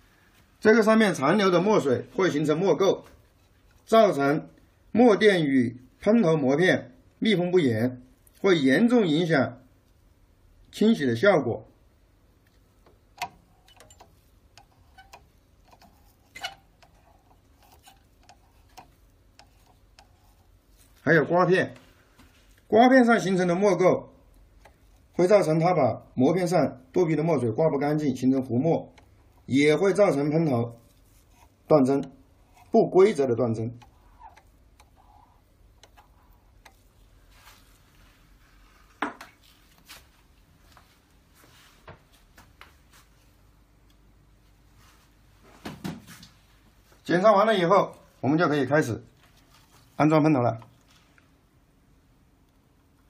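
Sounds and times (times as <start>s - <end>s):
swab clicking on plastic: 12.4s - 20.9s, 24.3s - 25.2s, 30.9s - 37.0s.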